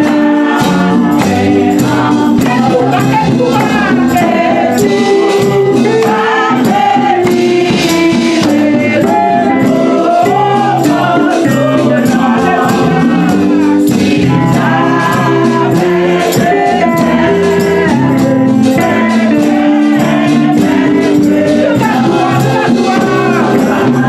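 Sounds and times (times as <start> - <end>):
gospel singing: 0.0 - 24.0
tambourine beat: 0.0 - 24.0.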